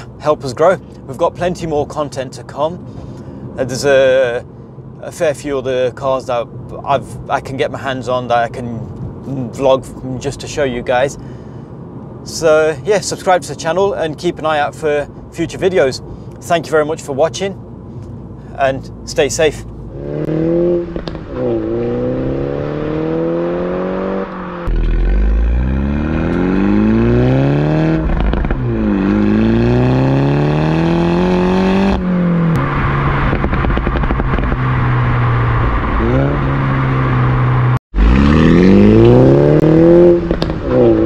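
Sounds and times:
car engine accelerating: 19.6 - 41.0.

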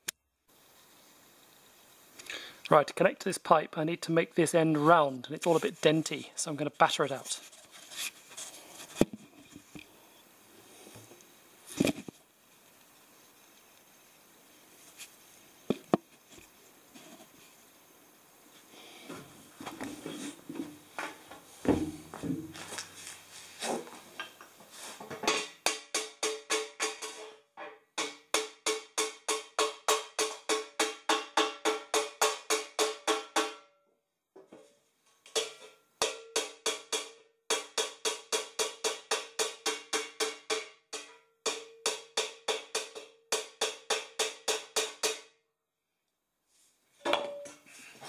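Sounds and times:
hammer striking metal pipe: 25.2 - 27.4, 28.0 - 33.7, 35.3 - 45.4, 47.0 - 47.6.

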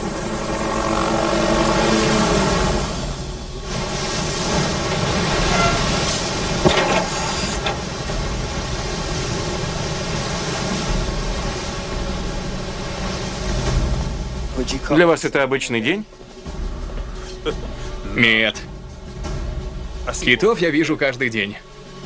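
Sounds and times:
submarine rumbling through sea: 0.0 - 15.1.

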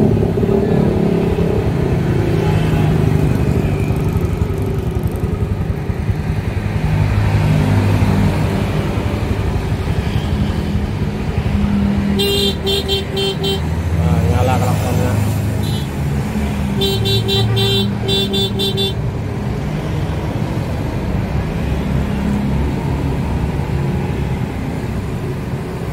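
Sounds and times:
motorcycle engine running: 0.1 - 12.7.

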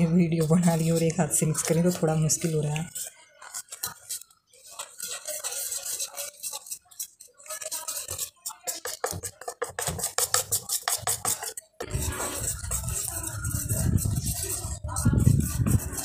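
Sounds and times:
whisk clicking against steel bowl: 5.1 - 11.7.

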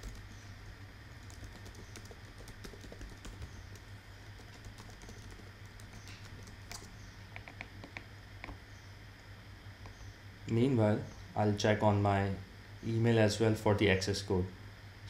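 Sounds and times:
keyboard typing: 0.0 - 0.3, 1.2 - 8.0
faint low hum: 0.0 - 15.0.

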